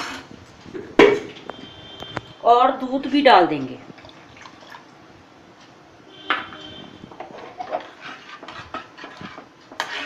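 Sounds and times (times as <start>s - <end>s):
metal spoon stirring in pan: 0.0s - 0.4s, 6.4s - 10.0s.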